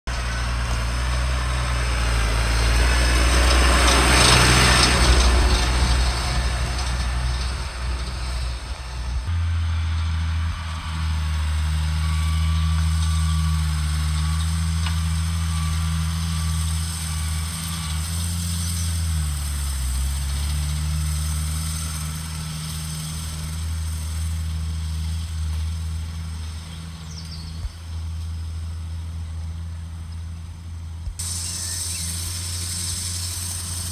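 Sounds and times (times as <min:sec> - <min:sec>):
tractor diesel engine running: 0:00.0 - 0:33.9.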